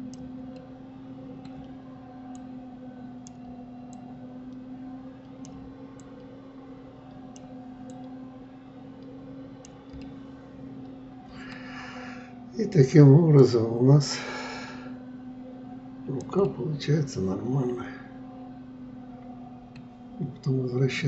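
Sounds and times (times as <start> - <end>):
low electrical hum: 0.0 - 21.0
computer mouse clicks: 1.4 - 2.5, 3.2 - 4.1, 5.2 - 6.3, 7.1 - 8.2, 9.6 - 10.2.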